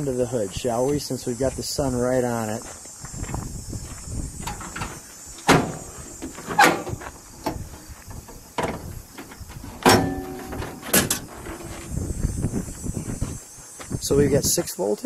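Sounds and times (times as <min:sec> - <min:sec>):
metallic clunks of hood latch: 0:04.5 - 0:05.8, 0:09.8 - 0:11.3.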